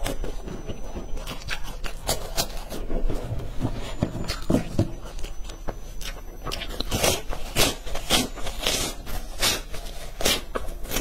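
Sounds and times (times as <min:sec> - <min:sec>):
crunchy snack chewing: 0:01.2 - 0:02.8, 0:04.3 - 0:11.0.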